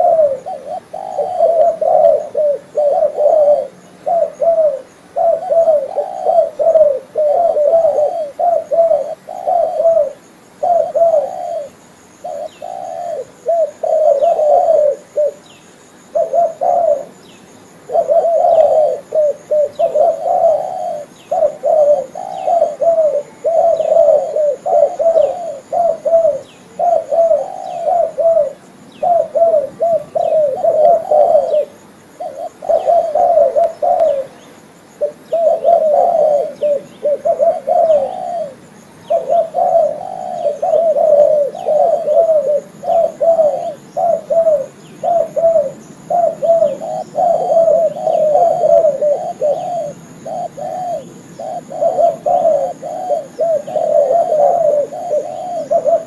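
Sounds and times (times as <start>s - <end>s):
dove cooing: 0.0s - 56.0s.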